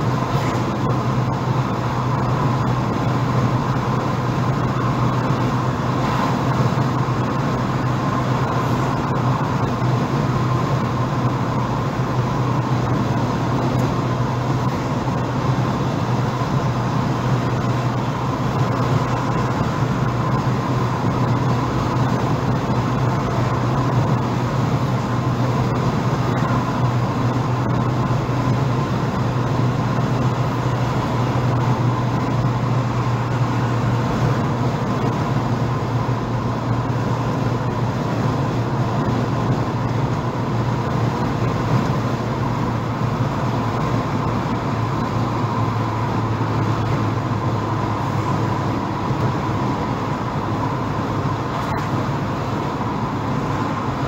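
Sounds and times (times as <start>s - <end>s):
car engine and road drone: 0.0s - 54.0s.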